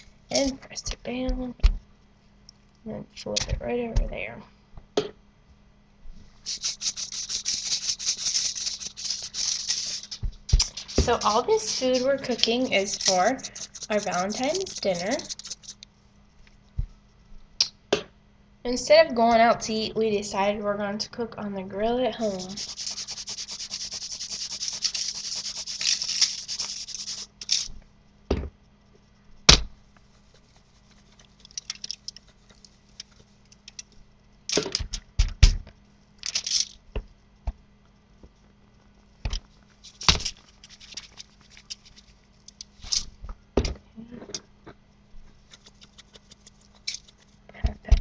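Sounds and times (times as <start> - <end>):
seasoning granules falling: 6.5 - 15.8, 22.4 - 27.7, 31.3 - 32.2, 36.2 - 36.7.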